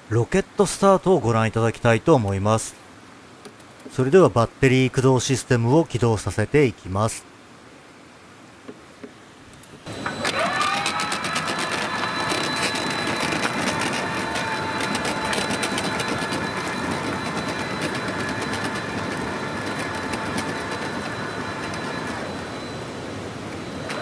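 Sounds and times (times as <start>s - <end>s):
electric motor whine: 9.8s - 24.0s.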